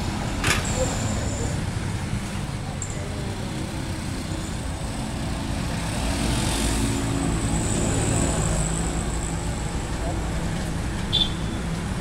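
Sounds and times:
road traffic: 0.0s - 12.0s.

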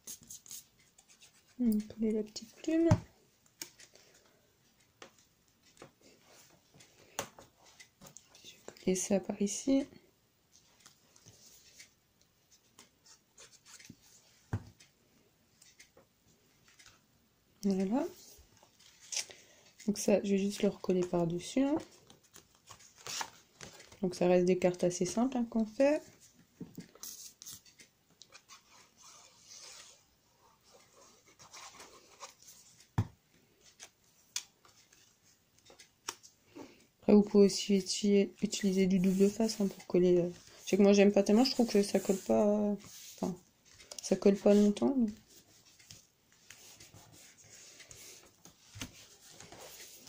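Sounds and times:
paper rubbing and scratching: 0.0s - 1.6s, 28.4s - 32.7s, 38.6s - 43.2s, 45.4s - 50.0s.

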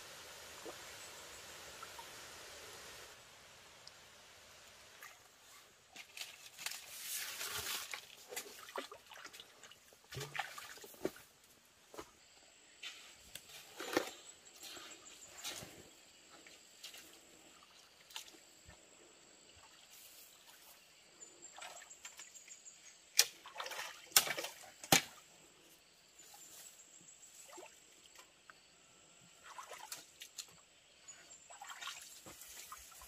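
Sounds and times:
water splashing in a stream: 4.8s - 11.4s, 21.4s - 25.3s, 27.4s - 28.3s, 29.4s - 33.0s.

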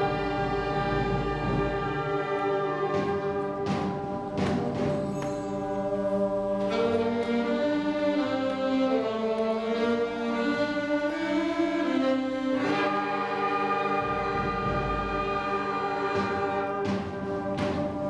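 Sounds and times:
sharp percussion strikes: 0.0s - 7.0s
concert band playing: 0.0s - 18.0s.

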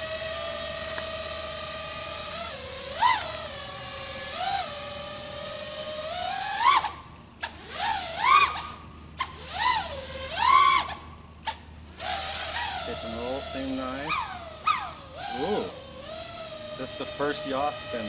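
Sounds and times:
drone motors whining: 0.0s - 18.0s.

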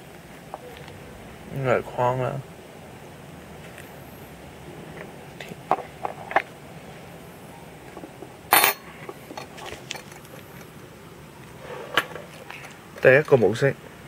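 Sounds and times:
sharp metallic clink: 8.5s - 9.5s.

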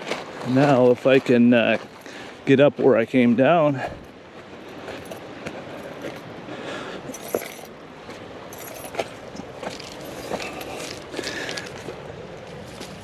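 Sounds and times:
footsteps on sandy dirt: 0.0s - 13.0s
metallic jingling of gear: 7.1s - 7.7s, 8.5s - 9.0s, 9.7s - 11.0s.

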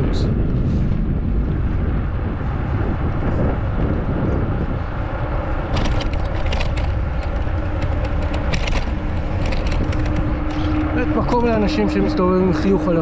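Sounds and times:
wind and road noise rumble: 0.0s - 13.0s.

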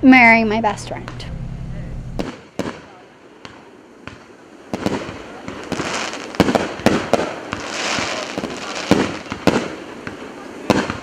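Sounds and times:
firework bangs: 0.7s - 11.0s
crackling fizz of firework shells: 2.2s - 11.0s.

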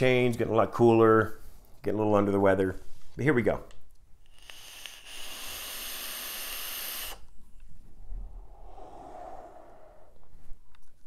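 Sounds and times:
hissing vape draw: 4.3s - 7.3s
breathy exhale: 7.9s - 10.6s.

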